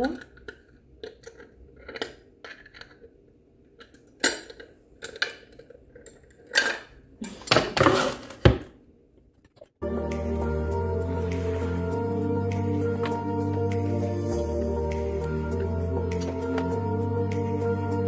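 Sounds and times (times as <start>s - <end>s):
metal rings and rod clinking: 16.0s - 16.8s.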